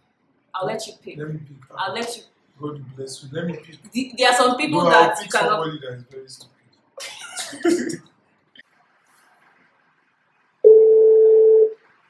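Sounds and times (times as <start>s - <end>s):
phone ringback beep: 10.6s - 11.8s.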